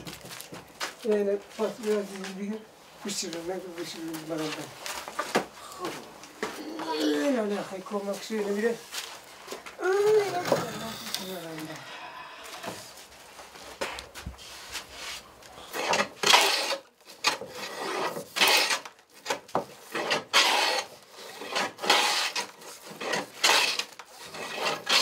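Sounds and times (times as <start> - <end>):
hand plane rasping on wood: 15.7 - 18.8, 19.8 - 25.0.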